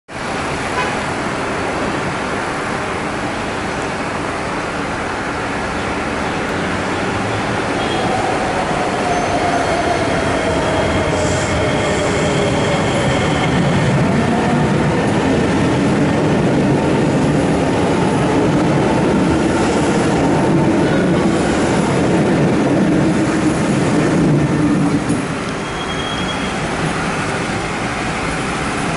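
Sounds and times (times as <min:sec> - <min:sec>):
electric train accelerating: 0:06.1 - 0:28.9.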